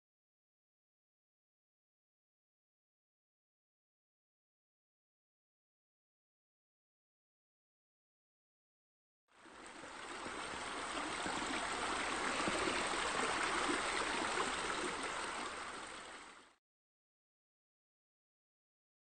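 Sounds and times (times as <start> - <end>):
running water: 9.3 - 16.6.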